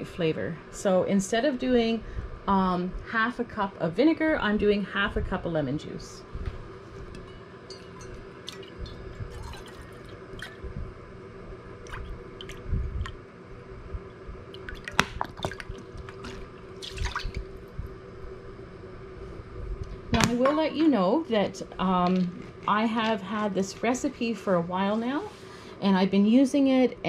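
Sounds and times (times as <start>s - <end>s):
faint steady hum: 0.0s - 27.0s
liquid trickling and dripping: 7.7s - 10.8s, 11.8s - 13.2s, 14.5s - 17.8s.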